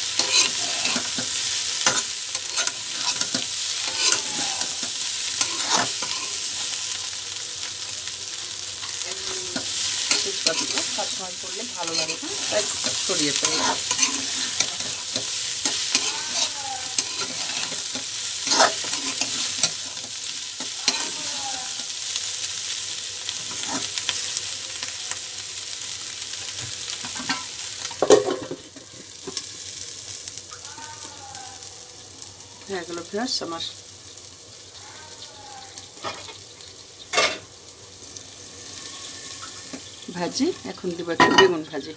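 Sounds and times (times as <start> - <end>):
metal spatula scraping a pan: 0.0 - 6.7, 8.8 - 21.9, 23.4 - 24.0
food sizzling in a pan: 0.0 - 41.9.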